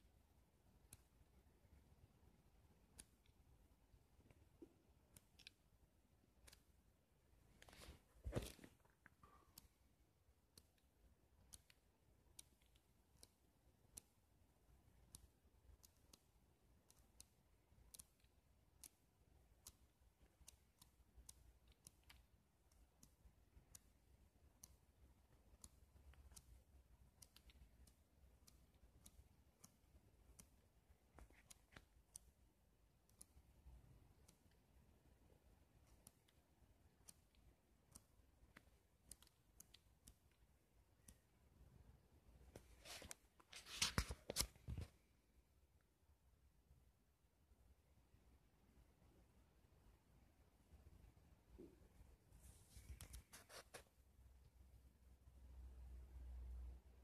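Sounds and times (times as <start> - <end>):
faint sharp clicks: 6.4 - 6.8, 15.0 - 41.7
book pages rustling and flicking: 7.5 - 9.7, 42.5 - 45.1, 52.4 - 53.9.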